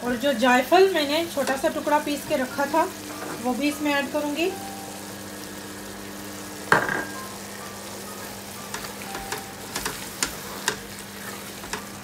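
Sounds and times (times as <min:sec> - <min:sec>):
frying pops and spits: 0:00.0 - 0:04.3, 0:05.4 - 0:12.0
curry sizzling in pan: 0:00.0 - 0:12.0
glass bowl knocking on pan: 0:06.7 - 0:07.2.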